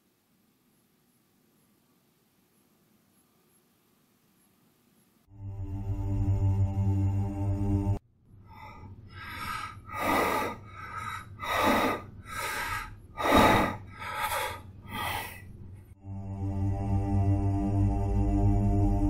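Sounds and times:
man breathing hard: 0:08.5 - 0:15.5.

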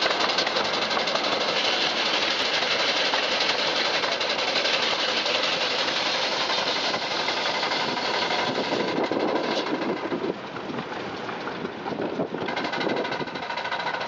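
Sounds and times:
steam hiss: 0:00.0 - 0:10.1
steam engine chuffing: 0:00.0 - 0:14.0.

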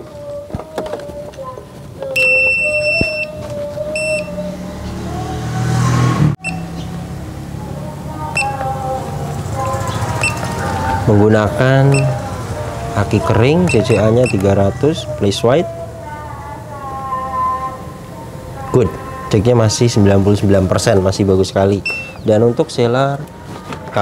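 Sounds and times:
battery tester beeping: 0:02.2 - 0:04.4, 0:06.4 - 0:06.8, 0:08.4 - 0:08.6, 0:10.2 - 0:10.4, 0:11.9 - 0:12.2, 0:13.7 - 0:14.5, 0:21.8 - 0:22.2.

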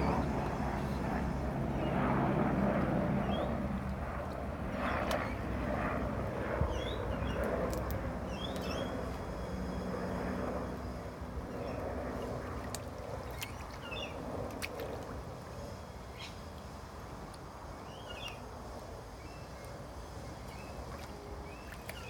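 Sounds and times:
low engine-like rumble: 0:00.0 - 0:22.0
puppy splashing in water: 0:12.5 - 0:15.3, 0:20.4 - 0:22.0.

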